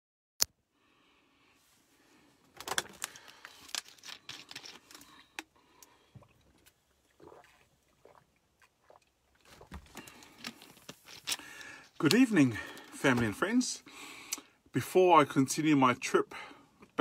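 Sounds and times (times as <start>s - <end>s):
plastic bottle crinkling: 2.5s - 5.5s, 6.2s - 13.4s.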